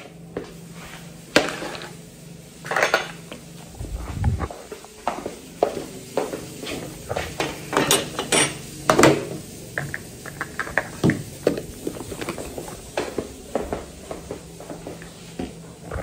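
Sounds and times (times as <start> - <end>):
dishes and cutlery clinking: 7.4 - 9.2.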